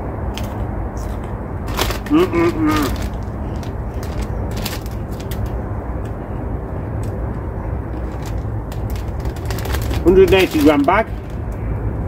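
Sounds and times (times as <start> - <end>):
wind rumble on microphone: 0.0 - 12.0
crisp packet crackling: 1.7 - 5.6, 7.9 - 11.4.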